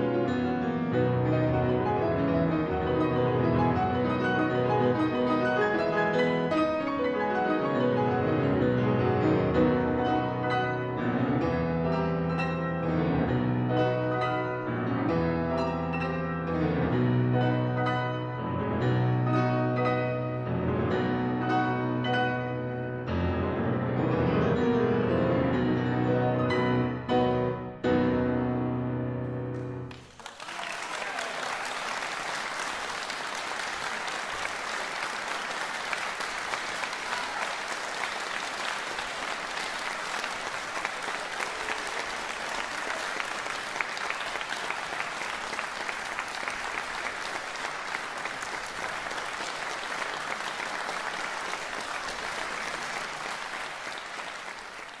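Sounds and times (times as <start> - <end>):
audience applauding: 29.8 - 55.0.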